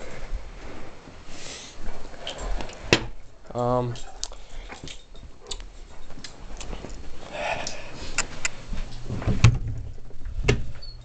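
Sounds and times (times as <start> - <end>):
footsteps: 4.0 - 10.5.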